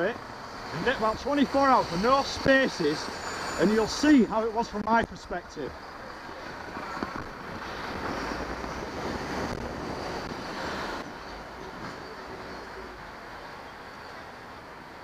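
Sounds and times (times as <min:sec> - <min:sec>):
wind rushing over microphone: 0:06.2 - 0:11.9.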